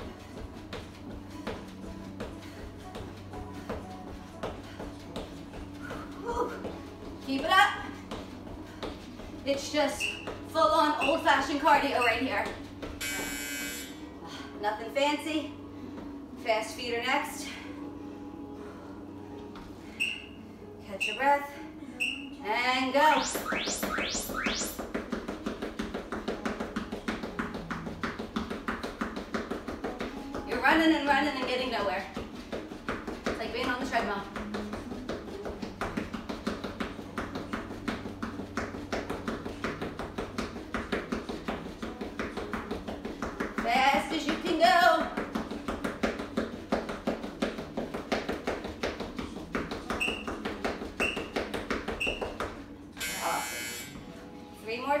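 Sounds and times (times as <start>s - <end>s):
quick footfalls running in place: 0.0s - 13.0s, 23.1s - 52.7s
workout music: 0.0s - 54.0s
rising synth sweeps: 23.1s - 24.8s
short high timer beeps: 23.1s - 24.8s.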